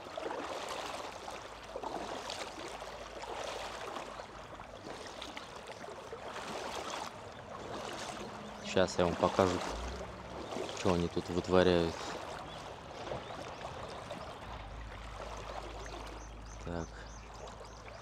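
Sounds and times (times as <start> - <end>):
river water flowing: 0.0 - 18.0
water swishes: 0.0 - 18.0.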